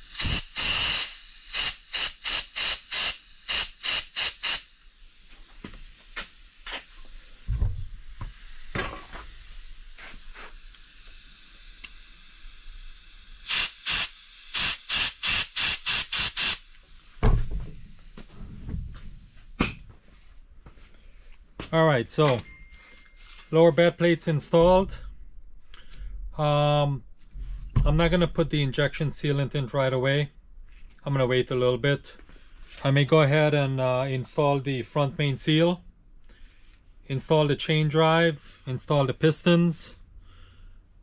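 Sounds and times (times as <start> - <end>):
compressed air blow gun bursts: 0.0 - 18.3.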